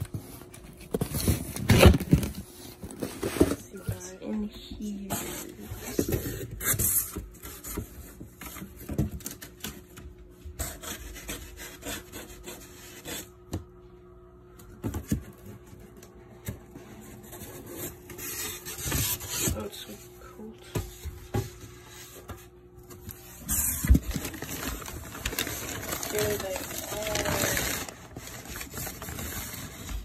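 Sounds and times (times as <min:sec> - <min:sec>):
foam scraping cardboard: 0:10.6 - 0:13.4, 0:23.2 - 0:30.0
newspaper crinkling: 0:23.0 - 0:30.0.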